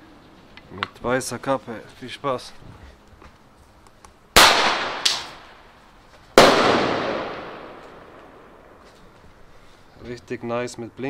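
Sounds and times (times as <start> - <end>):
firework bangs with echo: 4.4 - 5.6, 6.4 - 8.8.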